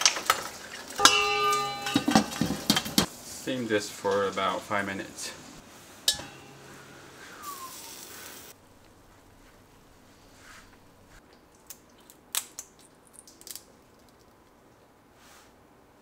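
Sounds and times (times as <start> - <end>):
metal lid clinking: 1.0 - 3.1, 6.1 - 7.0
steam hissing: 5.2 - 10.8
shells cracking and peeling: 11.3 - 14.6.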